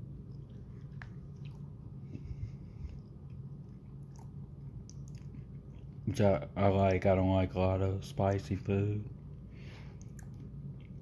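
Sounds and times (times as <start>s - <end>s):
steady low hum: 0.0s - 11.0s
person chewing: 0.2s - 6.0s, 9.2s - 11.0s.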